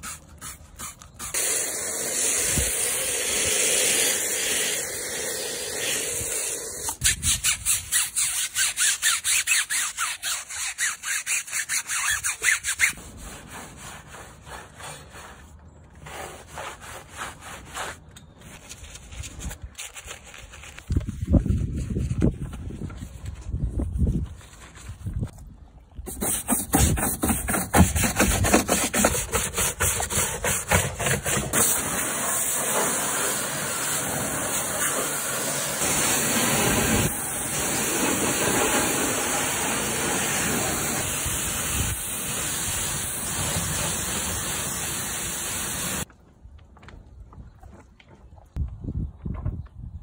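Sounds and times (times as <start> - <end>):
pressure washer spraying water: 0.8 - 7.0, 31.5 - 46.1.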